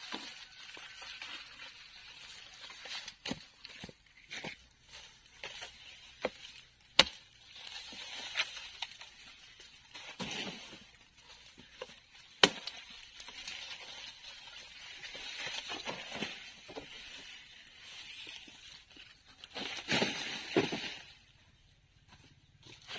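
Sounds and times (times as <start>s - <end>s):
leaves and stalks rustling: 0.0s - 21.6s
blade chopping sugar cane: 5.4s - 8.9s, 11.8s - 13.0s.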